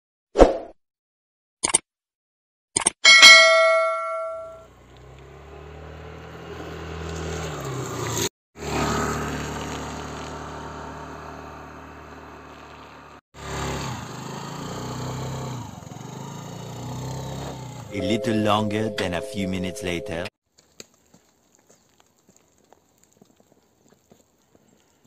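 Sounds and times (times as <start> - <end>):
scooter engine passing: 4.5 - 18.0
tyres hissing on wet road: 6.6 - 15.3.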